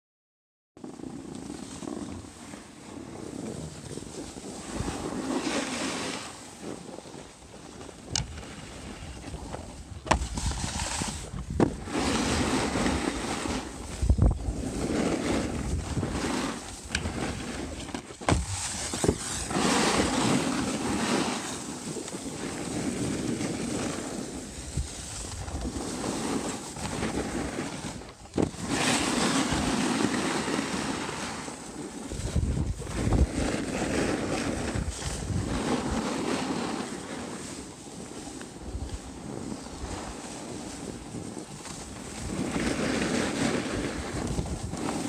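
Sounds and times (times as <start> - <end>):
skis scraping on packed snow: 0.8 - 45.0
wind rushing over microphone: 7.9 - 37.8, 38.5 - 45.0.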